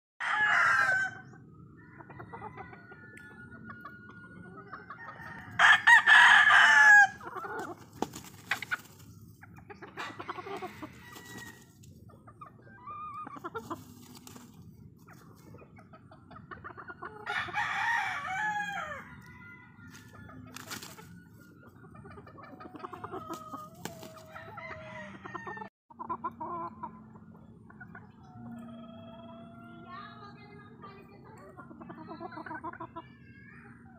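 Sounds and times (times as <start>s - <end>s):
roosters crowing: 0.2s - 9.0s, 9.8s - 11.9s, 17.1s - 21.4s, 22.5s - 25.7s.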